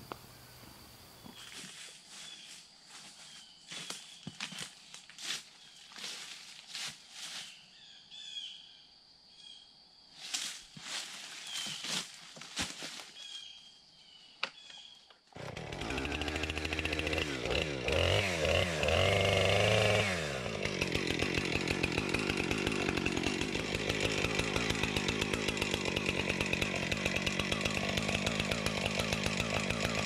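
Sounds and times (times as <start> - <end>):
high insect drone: 0.0 - 14.4
footsteps in leaf litter: 1.3 - 7.7, 10.2 - 13.5
bird chirps: 7.4 - 9.7, 11.4 - 11.9, 13.2 - 15.1
chainsaw engine starting: 15.3 - 30.0.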